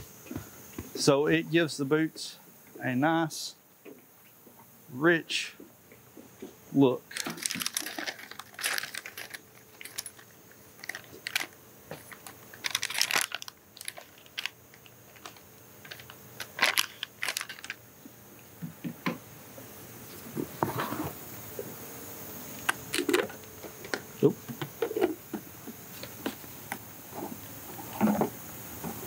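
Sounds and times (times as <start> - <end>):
paper rustling and crinkling: 7.1 - 17.8.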